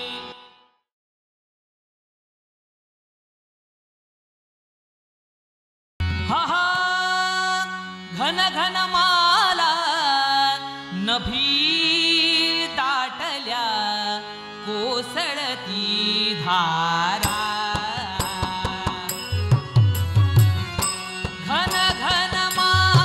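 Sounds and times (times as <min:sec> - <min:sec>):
harmonium notes: 0:00.0 - 0:00.9, 0:06.0 - 0:23.0
man singing: 0:06.1 - 0:23.0.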